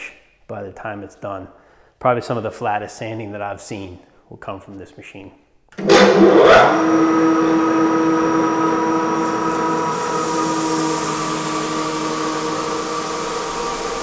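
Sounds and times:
floor sander humming: 5.8 - 14.0
high hiss: 9.2 - 14.0.

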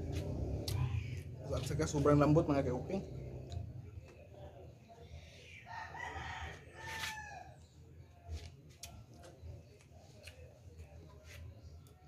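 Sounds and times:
rooster crowing: 5.7 - 7.6.

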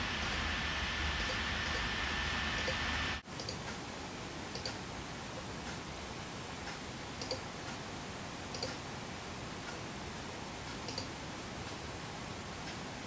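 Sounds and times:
steady hiss: 0.0 - 13.0
faint computer mouse clicks: 3.4 - 3.8, 4.5 - 4.8, 6.7 - 7.8, 8.5 - 8.8, 10.8 - 11.1.

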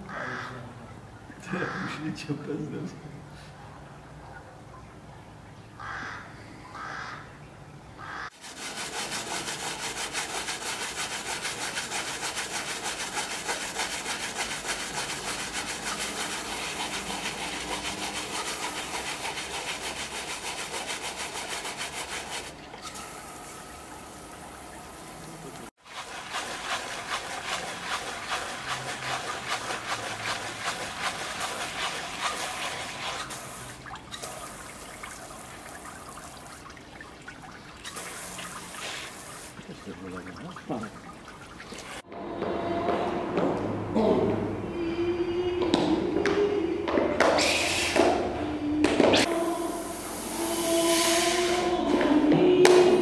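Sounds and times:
wire brush scrubbing paint: 8.4 - 22.6, 25.8 - 34.4, 37.9 - 40.2.

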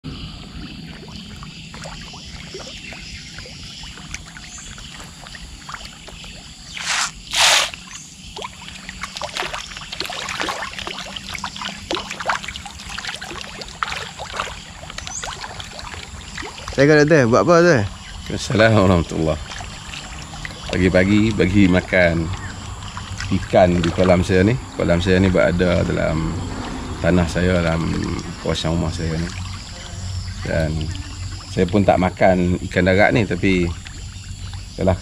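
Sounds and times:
fish splashing at water surface: 0.6 - 16.8, 17.9 - 24.5
loud splashes: 6.7 - 8.0.

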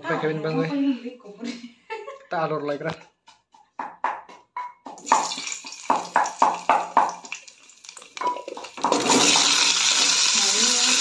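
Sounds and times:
knocks in a pan: 3.8 - 7.4, 8.2 - 9.5
hot oil crackling: 5.0 - 11.0
loud steady sizzle: 7.2 - 11.0.

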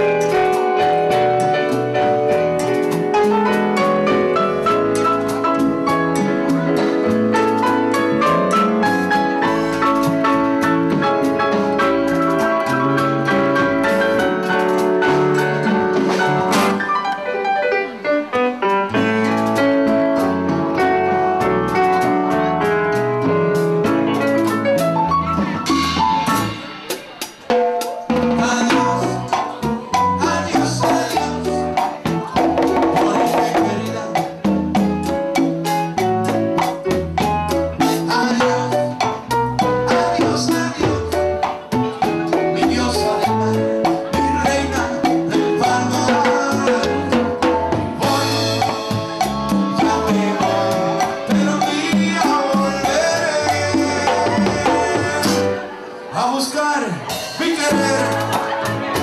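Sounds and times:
drum kit with cymbals: 0.0 - 17.0, 18.4 - 56.1, 56.7 - 59.0
electric keyboard chords: 0.0 - 59.0
bass line: 28.2 - 55.8, 57.1 - 59.0.

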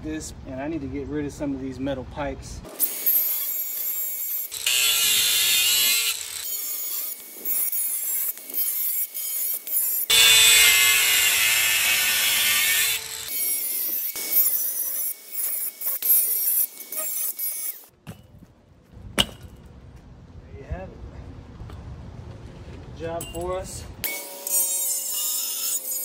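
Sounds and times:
angle grinder cutting steel pipe: 2.7 - 17.9, 24.0 - 26.0.

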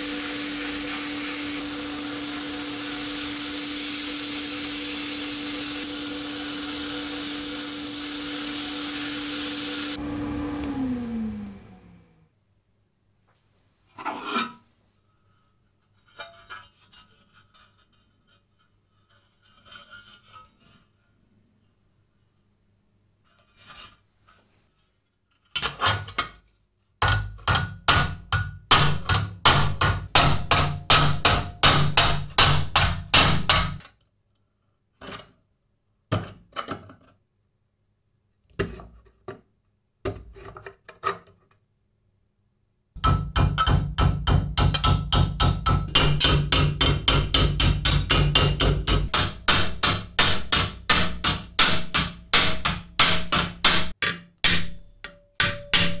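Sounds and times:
hammer striking steel on anvil: 27.0 - 33.8, 43.0 - 56.0.

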